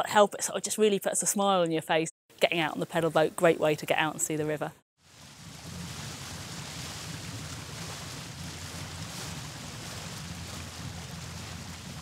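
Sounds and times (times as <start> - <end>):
water rushing past boat: 5.0 - 12.0.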